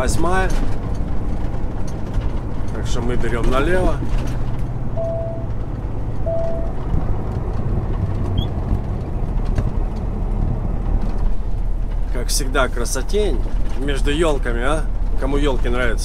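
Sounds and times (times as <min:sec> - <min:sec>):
diesel truck engine drone: 0:00.0 - 0:16.0
road noise: 0:00.0 - 0:16.0
short beeps: 0:05.0 - 0:05.5, 0:06.2 - 0:06.8.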